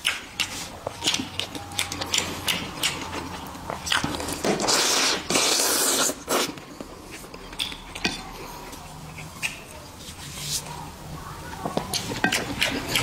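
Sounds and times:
chopsticks clicking: 0.0s - 4.2s, 7.4s - 8.3s, 9.1s - 9.7s
chewing: 0.0s - 9.8s, 11.8s - 13.0s
man slurping noodles: 4.6s - 6.6s.

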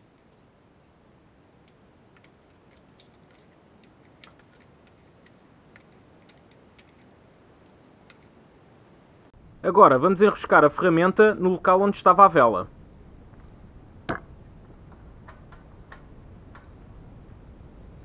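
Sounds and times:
plastic connectors clicking: 1.6s - 8.4s.

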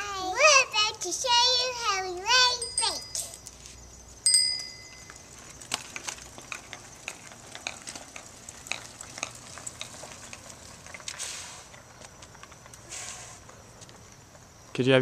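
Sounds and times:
bicycle bell ding: 2.6s - 3.4s, 4.2s - 5.2s
bike tyres crackling on asphalt: 4.6s - 14.6s.

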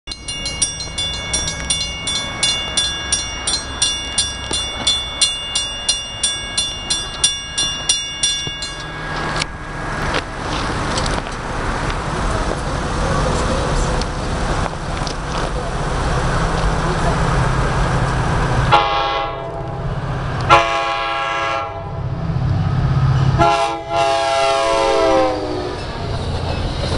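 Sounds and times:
railroad crossing bell ringing: 0.1s - 10.4s, 23.0s - 26.9s
rumble of approaching train: 0.1s - 26.9s.

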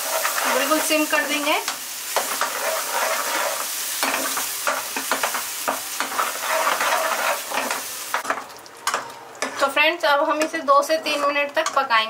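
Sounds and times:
paste sizzling in a pan: 0.0s - 9.6s
metal ladle scraping a pan: 2.1s - 9.8s.

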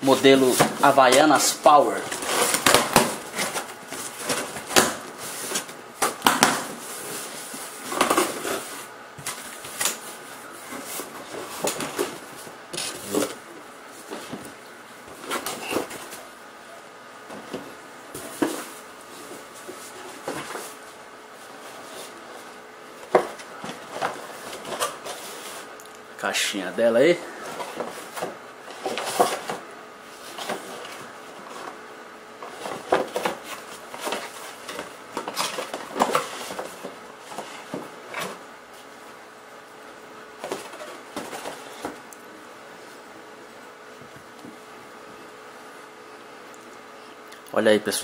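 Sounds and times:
cardboard flaps rustling: 0.0s - 16.3s, 17.2s - 25.7s, 27.2s - 31.8s, 32.4s - 38.9s, 40.4s - 42.1s.

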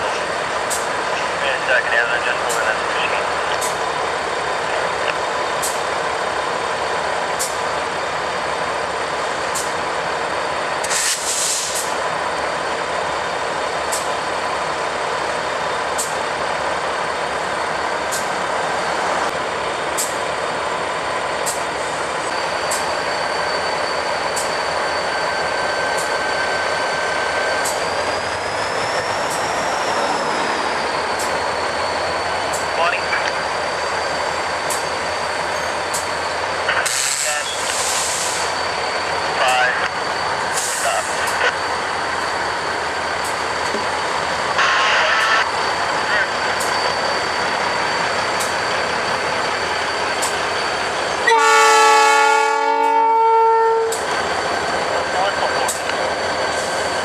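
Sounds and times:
diesel locomotives running: 0.0s - 57.0s
air hiss: 10.8s - 12.0s, 36.9s - 38.6s
thin high squeal: 22.3s - 32.8s.

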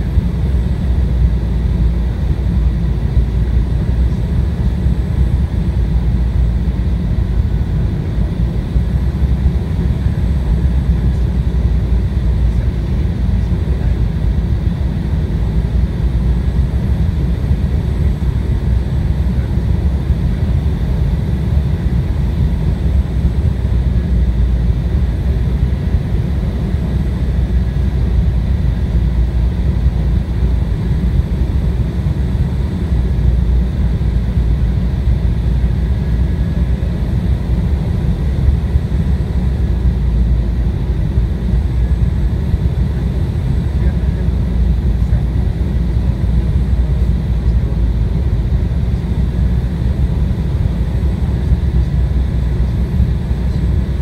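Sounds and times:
airliner cabin rumble: 0.0s - 54.0s.

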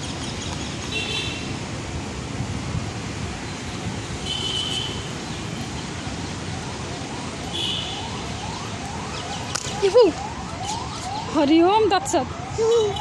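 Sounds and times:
traffic noise: 0.0s - 13.0s
faint siren: 5.4s - 13.0s.

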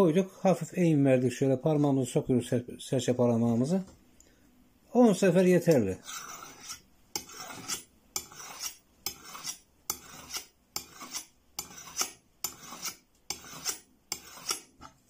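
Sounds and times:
knife scraping knife edge: 5.6s - 15.0s.

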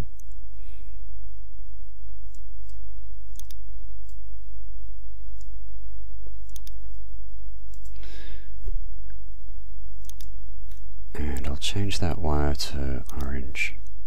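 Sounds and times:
computer mouse clicks: 0.0s - 0.4s, 2.2s - 4.2s, 5.3s - 5.6s, 6.4s - 7.1s, 7.7s - 8.0s, 10.0s - 11.5s, 13.0s - 14.0s
steady low hum: 0.0s - 14.0s.

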